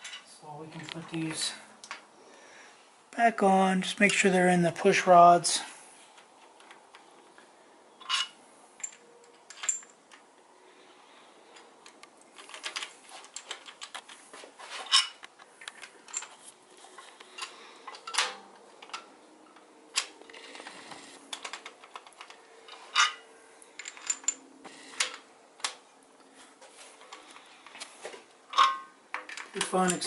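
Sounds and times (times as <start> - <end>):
metallic clicks and clinks: 8.0 - 10.2, 14.9 - 16.4, 21.3 - 25.8, 28.5 - 30.0.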